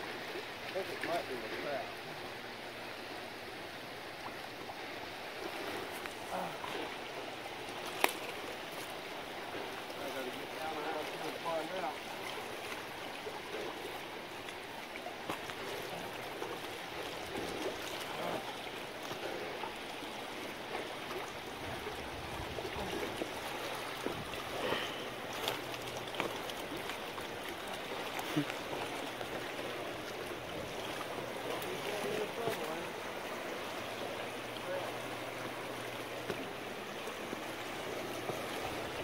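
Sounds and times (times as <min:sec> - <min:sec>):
river water rushing over rocks: 0:00.0 - 0:39.0.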